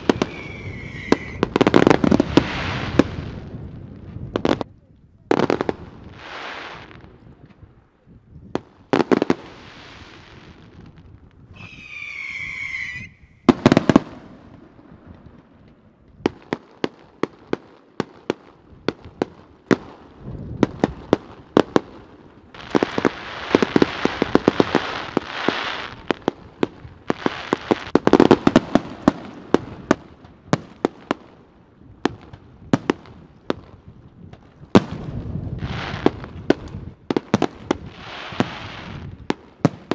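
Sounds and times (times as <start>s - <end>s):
whistling firework: 0.0s - 3.4s, 8.9s - 14.8s, 34.7s - 39.9s
firework bangs: 0.0s - 4.7s, 8.6s - 31.3s, 31.9s - 39.9s
firework crackling and hiss: 0.0s - 4.7s, 5.3s - 7.2s, 8.6s - 39.9s.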